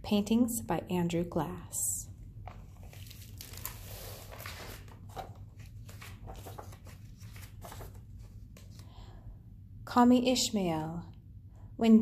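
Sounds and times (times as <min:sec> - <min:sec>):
book pages rustling and turning: 0:02.4 - 0:08.9.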